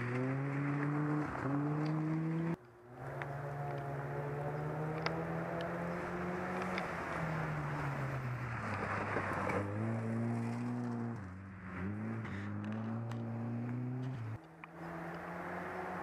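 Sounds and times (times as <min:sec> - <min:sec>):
rally car engine revving: 0:00.0 - 0:16.0
tyres on gravel rushing: 0:06.0 - 0:12.9.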